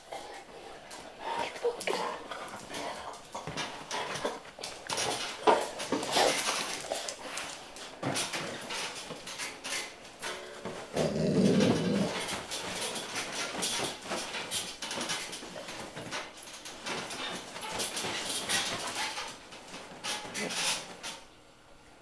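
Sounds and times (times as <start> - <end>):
dogs scuffling: 0.0 - 21.2
dog growling: 10.9 - 12.3.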